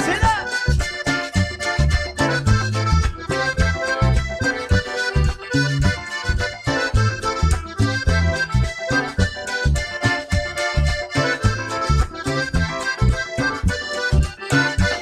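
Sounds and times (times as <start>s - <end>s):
drum kit dance beat: 0.0s - 4.3s
bass guitar: 0.0s - 15.0s
button accordion melody: 0.0s - 15.0s.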